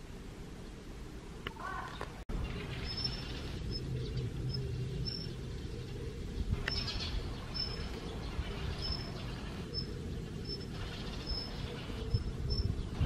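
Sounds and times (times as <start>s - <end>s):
low background rumble: 0.8s - 13.0s.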